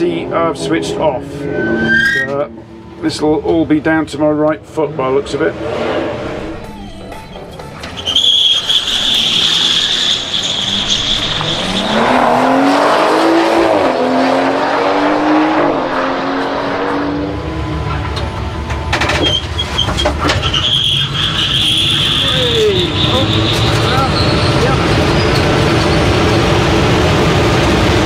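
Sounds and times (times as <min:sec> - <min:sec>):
car engine revving: 0:04.6 - 0:07.1, 0:07.8 - 0:19.6.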